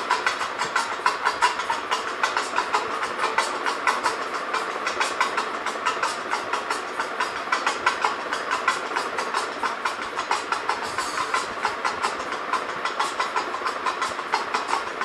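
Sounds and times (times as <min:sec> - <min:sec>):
train rumble: 0:00.0 - 0:15.0
train wheels clattering: 0:00.0 - 0:15.0.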